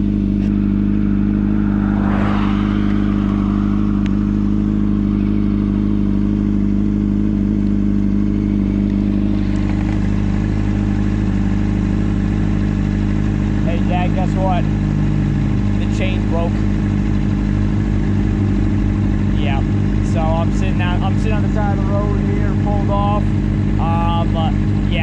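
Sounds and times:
motorcycle engine running: 0:00.0 - 0:25.0
brief rush of noise: 0:00.5 - 0:06.2.

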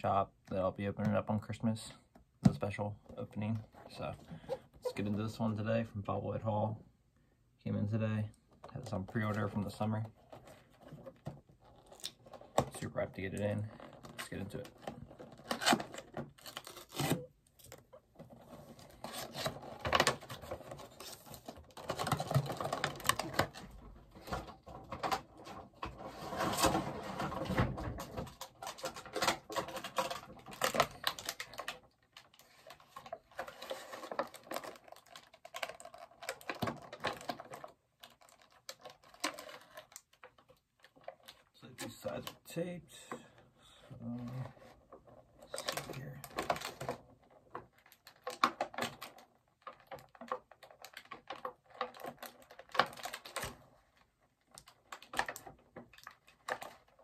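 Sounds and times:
rustling cardboard and tape: 0:08.5 - 0:57.0.

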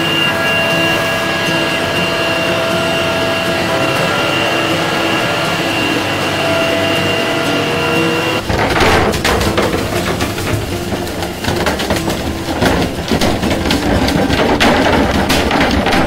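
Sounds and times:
frozen fish banging down steel chute: 0:00.0 - 0:16.0
machine hum: 0:00.0 - 0:16.0.

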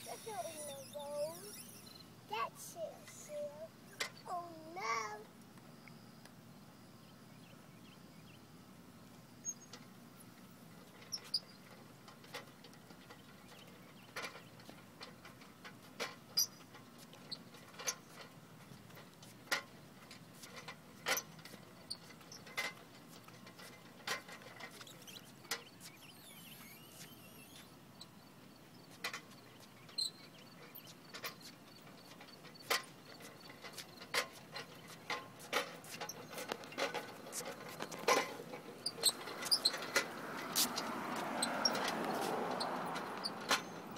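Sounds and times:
tricycle pedal clicks: 0:00.0 - 0:02.0, 0:10.8 - 0:43.9
tricycle rolling on concrete: 0:00.0 - 0:05.7, 0:07.2 - 0:43.9.

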